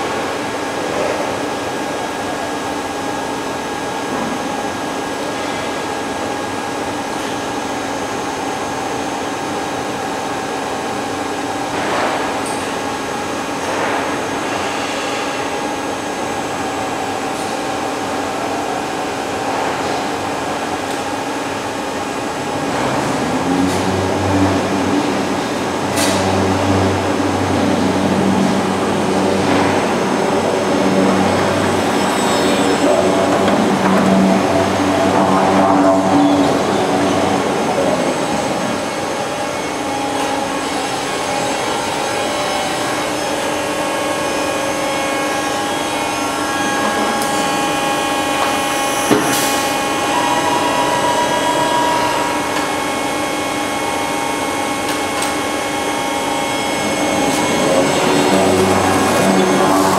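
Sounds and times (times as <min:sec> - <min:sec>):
machinery humming: 0:00.0 - 0:59.9
deep motor drone: 0:22.5 - 0:40.1, 0:55.3 - 0:59.9.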